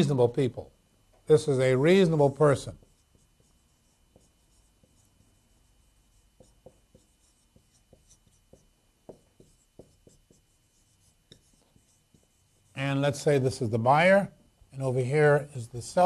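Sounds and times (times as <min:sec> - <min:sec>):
marker pen writing on whiteboard: 0:02.6 - 0:12.8.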